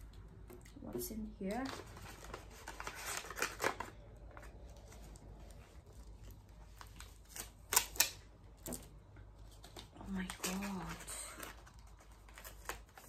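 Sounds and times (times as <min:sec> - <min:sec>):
paper rustling and tearing: 0:01.5 - 0:08.2, 0:09.5 - 0:13.0
sharp paper crackles: 0:01.5 - 0:08.2, 0:09.4 - 0:13.0.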